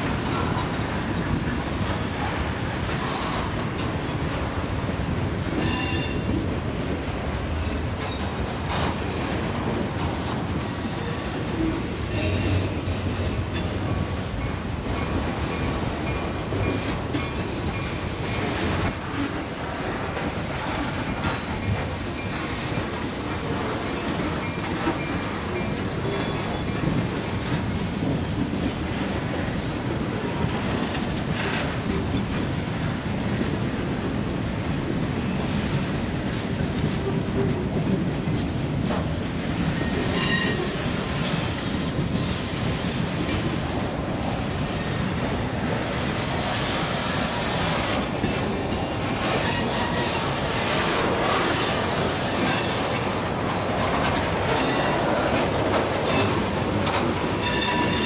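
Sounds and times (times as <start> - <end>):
freight train wheels rumbling: 0.0 - 58.0
high-pitched wheel squeals: 41.6 - 44.3, 57.4 - 58.0.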